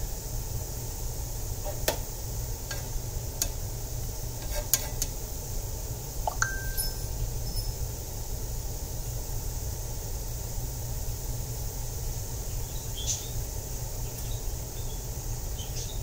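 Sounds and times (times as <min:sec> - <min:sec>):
steady low hum: 0:00.0 - 0:16.0
ringing clink: 0:06.3 - 0:07.8.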